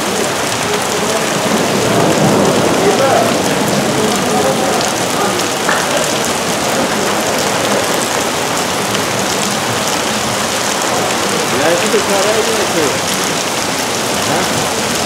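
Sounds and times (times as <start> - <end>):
heavy rain on wet pavement: 0.0 - 15.0.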